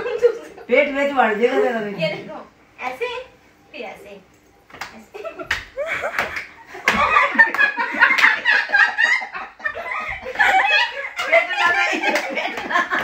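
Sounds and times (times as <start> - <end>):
people laughing: 5.1 - 13.0.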